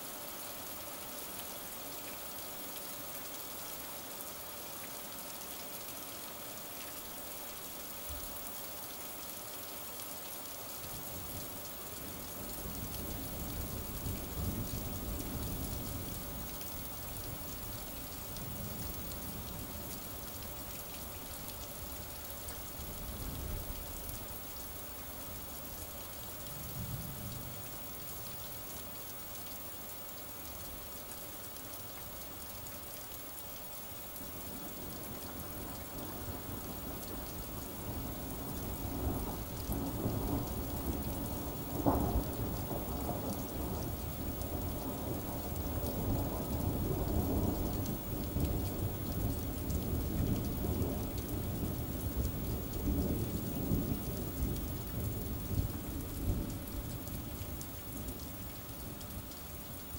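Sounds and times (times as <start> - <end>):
rain hissing: 0.0 - 59.9
thunder rumbling: 39.1 - 56.6.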